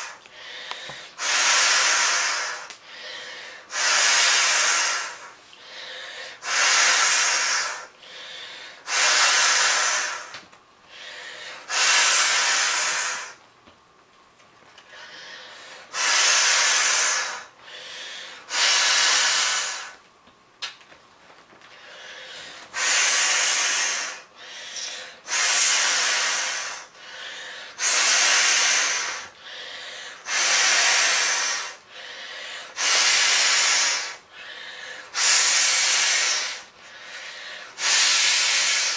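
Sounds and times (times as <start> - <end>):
quiet inhalations: 0.0 - 13.4, 14.7 - 20.0, 21.6 - 38.9
breaths blown into beach ball valve: 8.9 - 10.3, 11.7 - 13.4, 18.5 - 20.0, 27.8 - 29.3, 30.2 - 31.8, 32.8 - 34.2, 35.1 - 36.7, 37.7 - 38.9.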